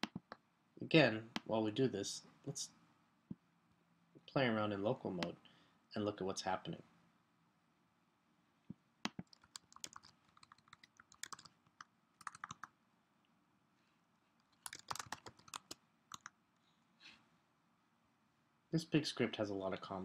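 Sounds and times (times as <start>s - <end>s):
faint keyboard typing: 9.0s - 12.8s, 14.4s - 16.4s.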